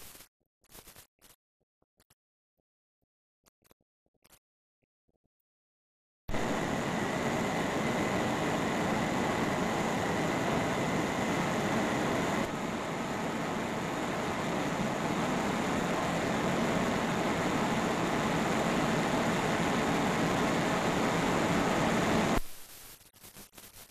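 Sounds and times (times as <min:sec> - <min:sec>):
mechanical running noise: 0:06.3 - 0:22.4
faint high whine: 0:06.3 - 0:22.6.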